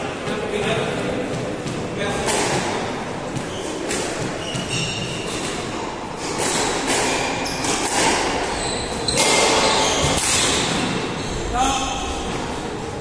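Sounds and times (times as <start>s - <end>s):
shoes squeaking on wooden floor: 3.3s - 5.6s, 8.5s - 10.2s
squash ball hits: 6.2s - 11.1s.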